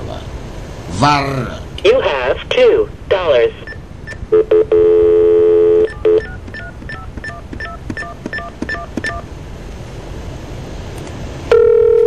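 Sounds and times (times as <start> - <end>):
keypad tones: 3.6 - 9.3, 11.5 - 12.0
telephone dial tone: 4.4 - 8.9, 11.5 - 12.0.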